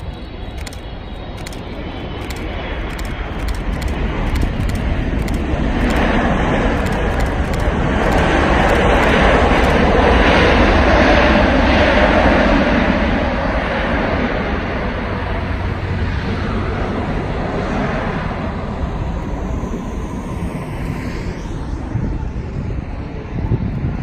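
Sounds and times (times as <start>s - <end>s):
jet engine noise: 0.0s - 24.0s.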